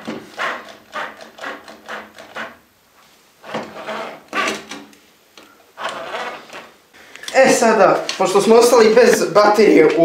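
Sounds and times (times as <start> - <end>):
screw creaking into wood: 0.0 - 2.6, 3.4 - 4.9, 5.8 - 6.8.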